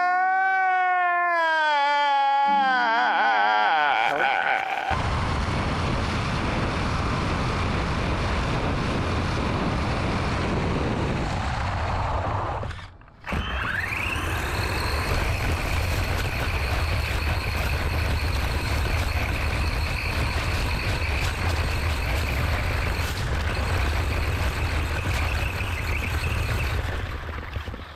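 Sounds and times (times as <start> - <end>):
wind noise on microphone: 4.9 - 27.9.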